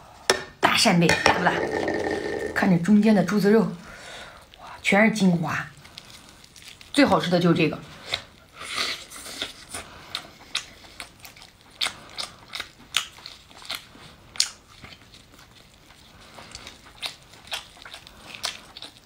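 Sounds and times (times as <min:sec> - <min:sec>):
person chewing with wet mouth smacks: 0:07.9 - 0:19.0.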